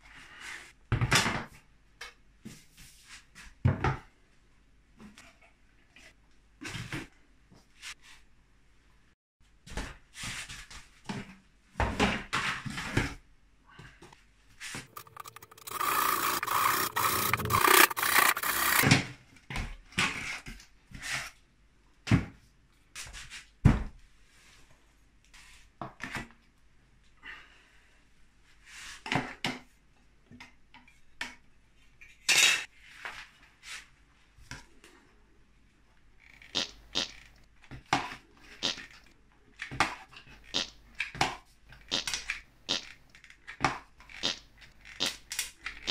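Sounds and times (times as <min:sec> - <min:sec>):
rubbing and scraping on plywood: 0:14.9 - 0:18.8.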